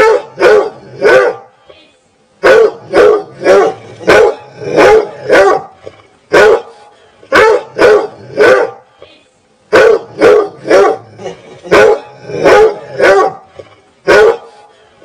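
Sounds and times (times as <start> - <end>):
dog barking: 0.0 - 1.5, 2.4 - 5.7, 6.3 - 8.8, 9.7 - 11.1, 11.7 - 14.6.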